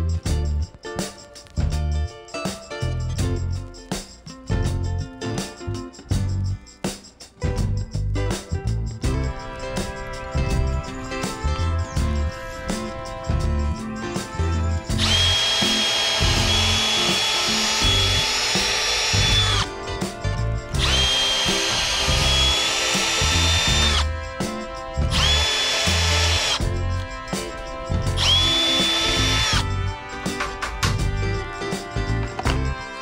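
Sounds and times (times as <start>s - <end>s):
cordless drill boring wood: 14.9s - 19.7s, 20.8s - 24.1s, 25.1s - 26.6s, 28.2s - 29.6s.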